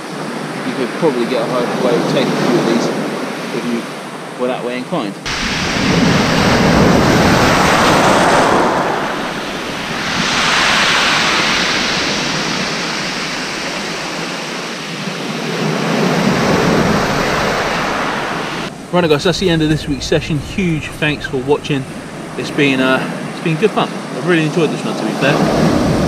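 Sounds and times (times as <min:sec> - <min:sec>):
waves breaking on shingle beach: 0:05.3 - 0:26.0.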